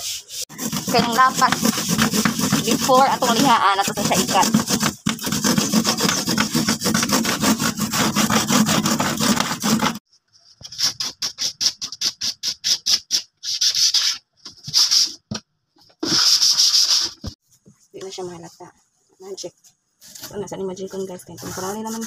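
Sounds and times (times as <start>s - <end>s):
sandpaper sanding wood: 0.0s - 10.0s, 10.7s - 15.1s, 16.0s - 17.4s, 21.4s - 22.0s
hand saw cutting wood: 0.5s - 10.0s.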